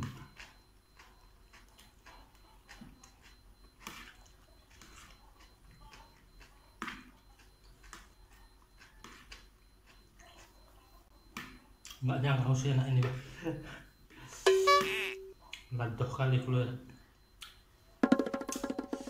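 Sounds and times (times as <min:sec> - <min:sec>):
chewing noodles: 0:00.0 - 0:12.0.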